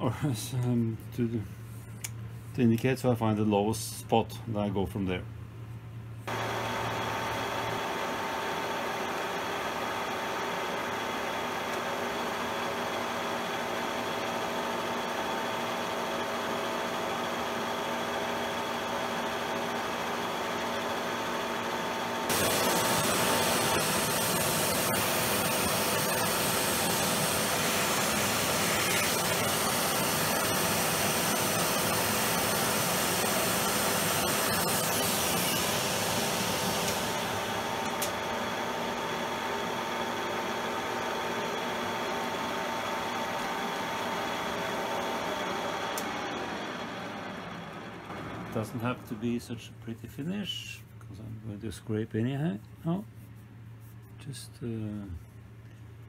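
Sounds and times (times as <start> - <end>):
milling machine hum: 6.2 - 50.2
vacuum cleaner hiss: 6.3 - 15.9, 21.6 - 49.6.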